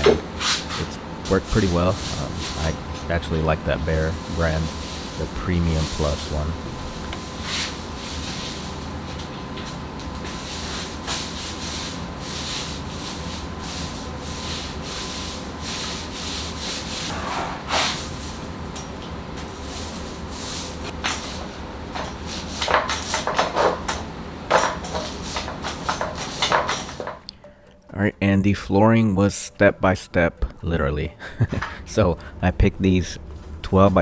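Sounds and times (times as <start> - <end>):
faint steady hum: 0.0 - 34.0
paint roller rasping on wall: 0.4 - 8.9, 10.2 - 18.5, 19.4 - 21.5.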